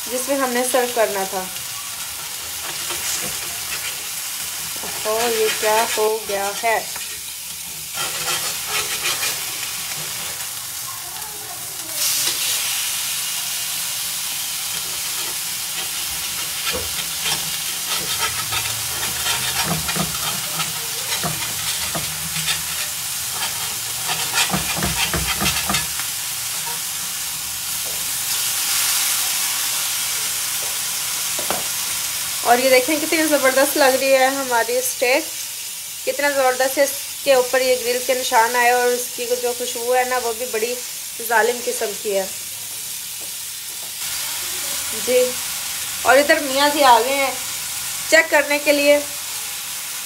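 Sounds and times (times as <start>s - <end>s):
meat sizzling on a grill pan: 0.0s - 50.0s
metal tongs clicking and scraping: 14.8s - 26.0s.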